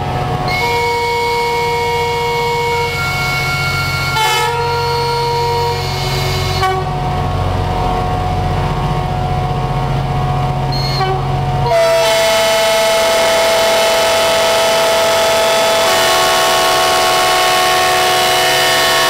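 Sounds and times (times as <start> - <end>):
locomotive engines rumbling: 0.0 - 19.0
locomotive horns: 0.5 - 7.0, 10.8 - 19.0.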